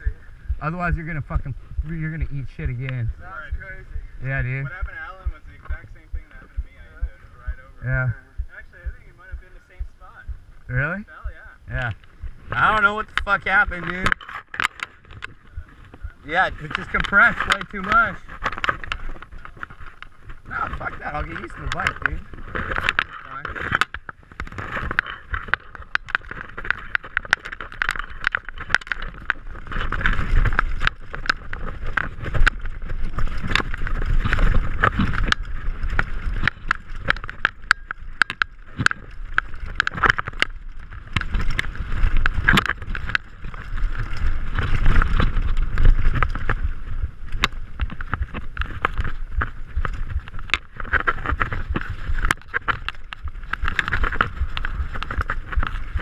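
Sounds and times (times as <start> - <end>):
wind buffeting microphone: 0.0 - 22.9, 28.2 - 56.0
bike tyres rumbling over dirt: 0.0 - 56.0
bike knocks and rattles: 12.2 - 56.0.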